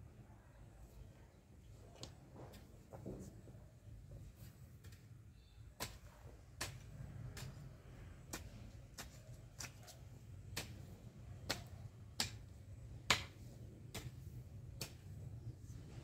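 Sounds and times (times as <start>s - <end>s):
hoe chopping into dry soil: 10.5s - 15.1s.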